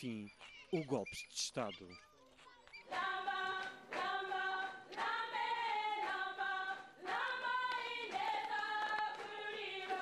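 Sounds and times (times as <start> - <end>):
choir singing a hymn unaccompanied: 2.9 - 10.0.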